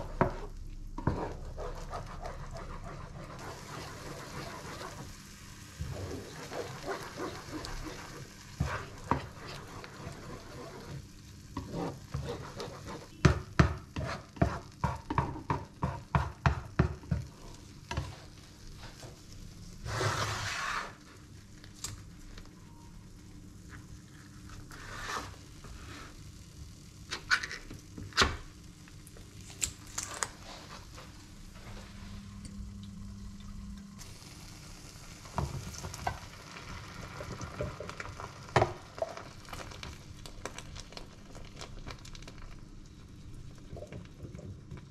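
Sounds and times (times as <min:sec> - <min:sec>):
spatula stirring and scraping: 0:00.0 - 0:19.2, 0:19.8 - 0:21.2, 0:23.7 - 0:26.2
eggs sizzling in frying pan: 0:00.0 - 0:44.9.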